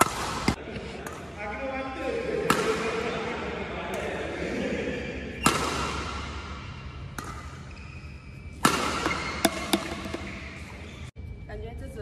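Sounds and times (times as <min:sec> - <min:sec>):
racquet hitting shuttlecock: 0:00.0 - 0:01.3, 0:02.4 - 0:02.9, 0:05.3 - 0:07.9, 0:08.5 - 0:10.9
racquet strings ringing ping: 0:08.6 - 0:10.6.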